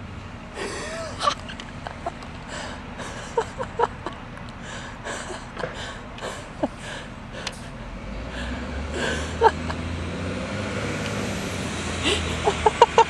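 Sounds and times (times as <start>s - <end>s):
idling bus hum: 0.0s - 13.0s
stifled breathy laughter: 0.6s - 9.9s, 12.0s - 13.0s.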